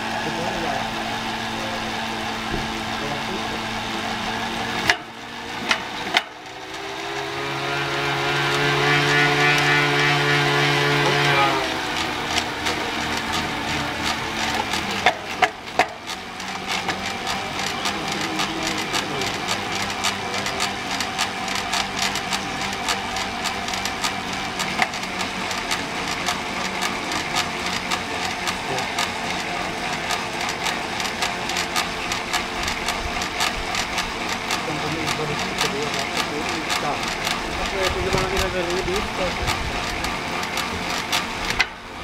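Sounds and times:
bicycle trainer whirring: 0.0 - 42.0
drivetrain ticking: 0.0 - 42.0
sharp clicks: 11.7 - 41.8.

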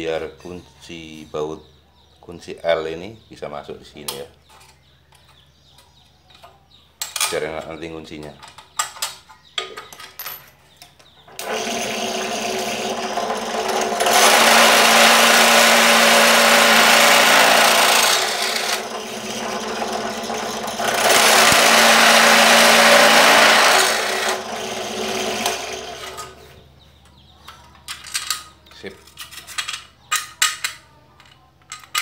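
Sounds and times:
drill bit cutting aluminium: 11.4 - 26.3
drill press motor running: 11.4 - 26.4.

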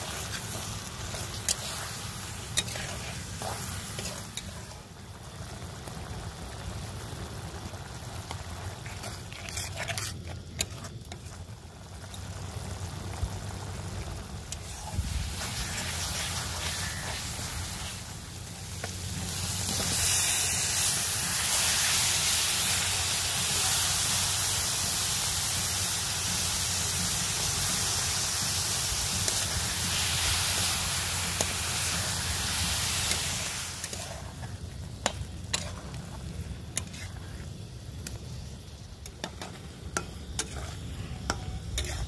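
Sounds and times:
spatula scraping a pan: 0.0 - 4.8, 8.6 - 11.4, 14.6 - 17.9, 33.0 - 37.5, 39.0 - 42.0
mushrooms sizzling in a pan: 0.0 - 42.0.

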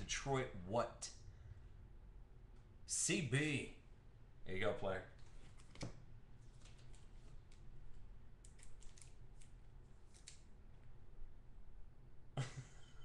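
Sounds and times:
plastic card sleeve crinkling: 5.2 - 7.7, 8.4 - 10.5.

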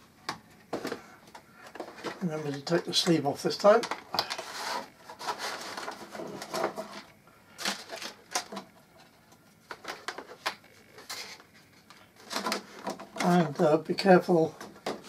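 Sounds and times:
plastic packaging crinkling: 3.6 - 8.7.

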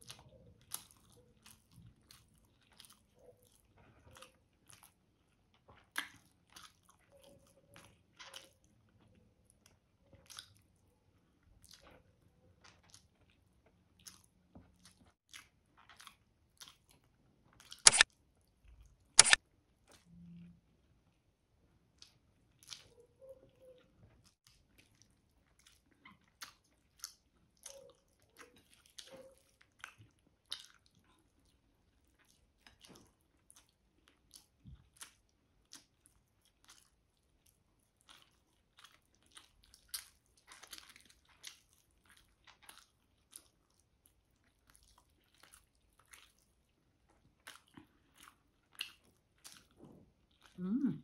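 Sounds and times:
person chewing: 0.0 - 20.4, 21.8 - 51.0
wet mouth smacks and clicks: 17.8 - 18.1, 19.2 - 19.4.

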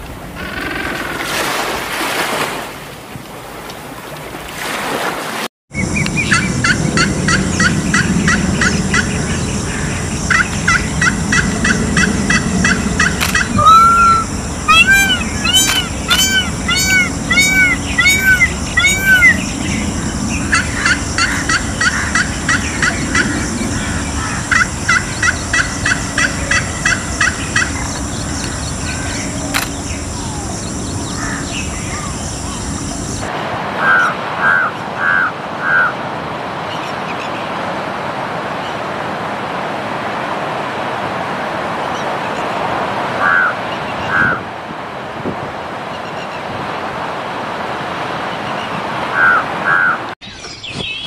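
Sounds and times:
peafowl calling: 6.2 - 32.9, 33.8 - 35.9, 43.2 - 44.4, 49.2 - 50.0
crow cawing: 13.2 - 19.4, 31.1 - 32.1, 33.8 - 35.9, 49.2 - 50.0
high insect buzz: 13.2 - 19.8.

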